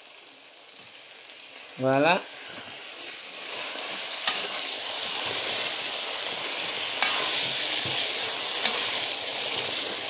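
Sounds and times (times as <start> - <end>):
sauce sizzling in a frying pan: 0.0 - 10.0.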